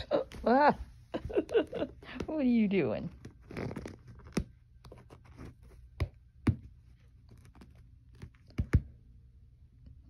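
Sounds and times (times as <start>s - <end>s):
kitten scratching inside box: 3.1s - 5.9s.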